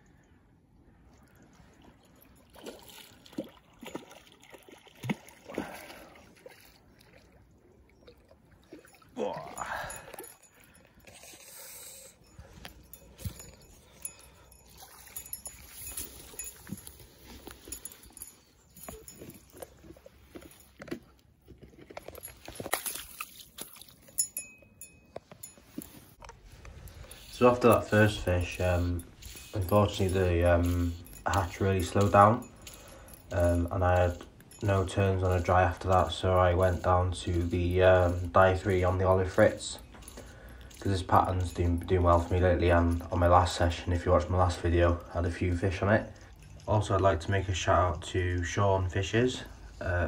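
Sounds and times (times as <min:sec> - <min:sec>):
water splashing: 0:01.1 - 0:49.7
fish splashing: 0:02.4 - 0:10.9, 0:22.1 - 0:24.5.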